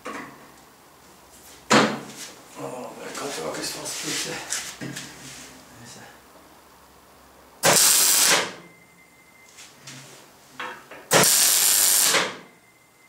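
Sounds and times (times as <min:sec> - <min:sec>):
arc welding crackle: 0:07.6 - 0:08.6, 0:11.1 - 0:12.5.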